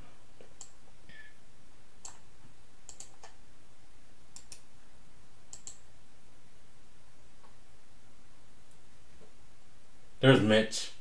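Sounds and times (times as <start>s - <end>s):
low steady hum: 0.0s - 11.0s
computer clicks: 0.4s - 1.3s, 2.0s - 2.2s, 2.8s - 3.4s, 4.3s - 4.7s, 5.5s - 5.8s.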